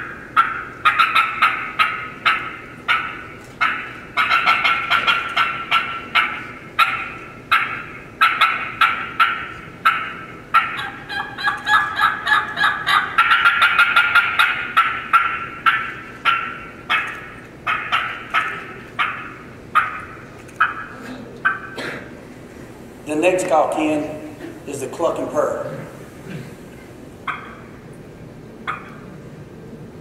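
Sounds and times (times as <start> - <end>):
turkey call clucks and yelps: 0.0 - 21.8, 27.2 - 27.8, 28.6 - 29.3.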